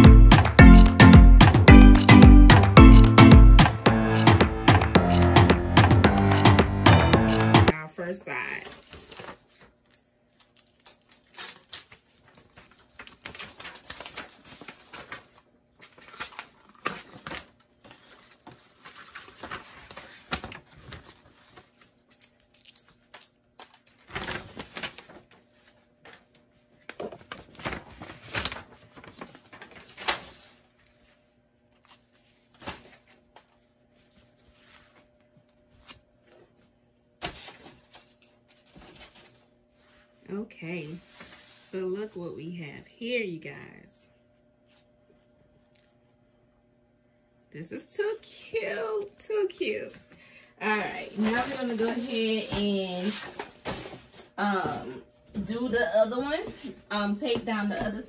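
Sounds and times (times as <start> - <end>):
paper rustling and crinkling: 8.4 - 40.2, 40.9 - 41.7, 50.6 - 54.3.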